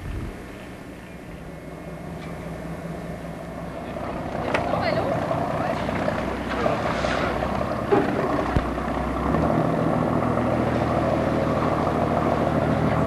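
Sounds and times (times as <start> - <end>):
boat engine running: 0.0 - 13.0.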